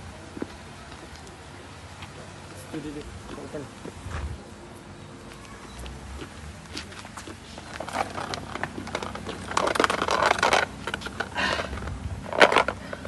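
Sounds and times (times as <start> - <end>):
measuring tape on asphalt: 5.3 - 13.0
rustling and crinkling handling: 6.7 - 13.0
clicks and scrapes: 7.7 - 11.4.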